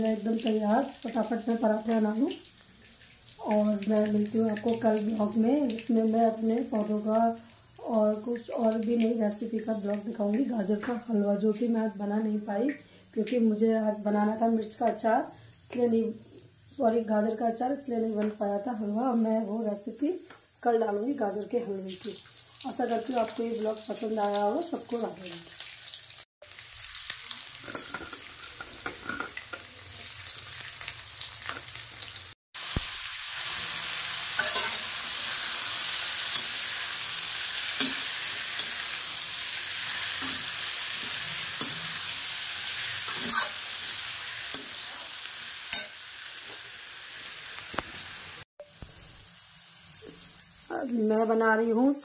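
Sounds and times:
greens sizzling in a pan: 0.0 - 52.0
spatula scraping a pan: 27.3 - 30.1, 33.4 - 46.6.

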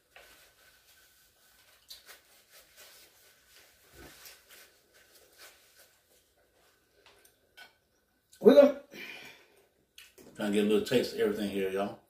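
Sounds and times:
paper napkin rustling: 0.0 - 6.8.

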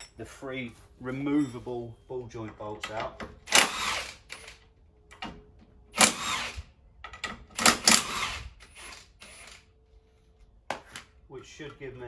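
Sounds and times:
power tool undoing bolts: 2.8 - 4.6, 5.9 - 9.7.

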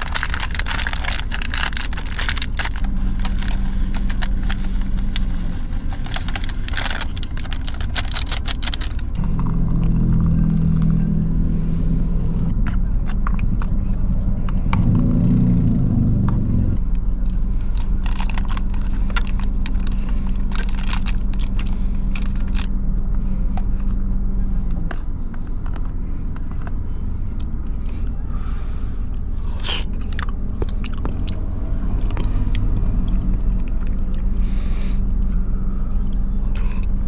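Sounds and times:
plastic wrapper crinkling: 0.0 - 10.9, 17.6 - 22.7
car low hum: 0.0 - 37.0
chewing: 17.2 - 22.7, 29.6 - 34.4, 35.1 - 37.0.

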